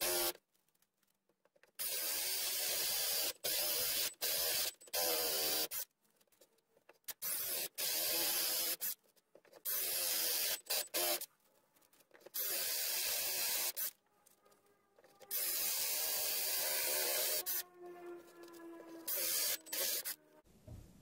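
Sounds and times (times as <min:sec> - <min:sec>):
electric drill boring wood: 0:00.0 - 0:00.4, 0:01.8 - 0:05.8, 0:07.2 - 0:08.9, 0:09.7 - 0:11.2, 0:12.4 - 0:13.9, 0:15.0 - 0:20.2.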